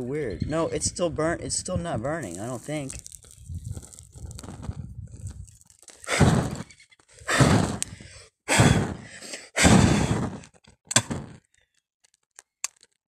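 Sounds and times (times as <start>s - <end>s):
air puffs buffeting microphone: 6.1s - 10.4s.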